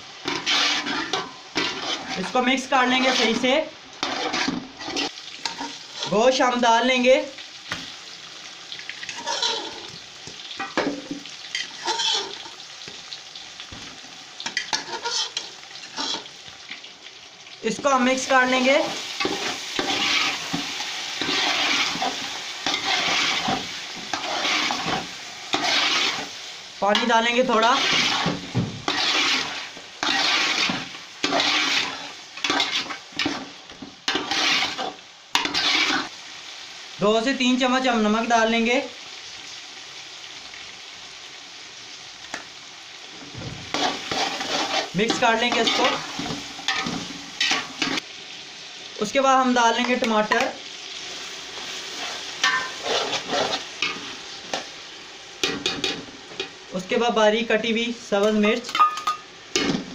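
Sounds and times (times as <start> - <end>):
meat sizzling in hot oil: 0.0 - 59.9
metal spatula stirring: 0.2 - 6.2, 11.6 - 12.6, 14.4 - 16.3, 19.2 - 36.1, 43.7 - 48.0, 51.9 - 54.6.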